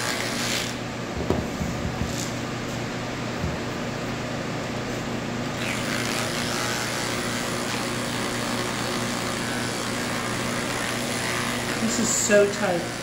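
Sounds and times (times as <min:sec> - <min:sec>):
electric clippers humming: 0:00.0 - 0:00.8, 0:05.4 - 0:13.0
clippers rasping through fur: 0:05.6 - 0:13.0.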